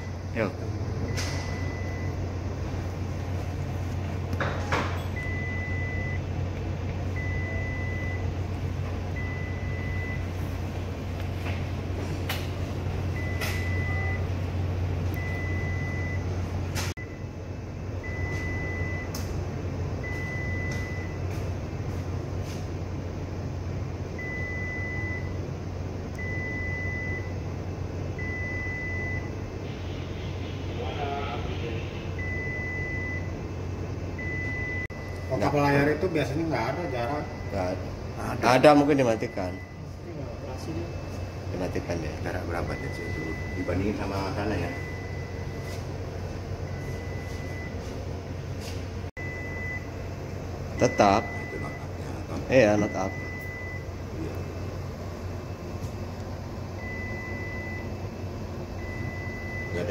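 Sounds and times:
electronic alarm beeping: 0:00.0 - 0:02.4, 0:05.0 - 0:06.3, 0:07.1 - 0:08.4, 0:09.1 - 0:10.5, 0:13.1 - 0:14.3, 0:15.1 - 0:16.4, 0:18.0 - 0:19.2, 0:20.0 - 0:21.4, 0:24.2 - 0:25.4, 0:26.2 - 0:27.4, 0:28.2 - 0:30.4, 0:31.2 - 0:33.4, 0:34.2 - 0:45.9, 0:46.6 - 0:48.0, 0:49.2 - 0:50.0, 0:50.7 - 0:54.8, 0:56.7 - 0:59.9
low machinery hum: 0:00.0 - 0:59.9.

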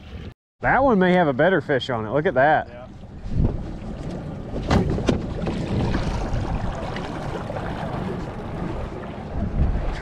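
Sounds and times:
wind noise on microphone: 0:03.1 - 0:10.0.

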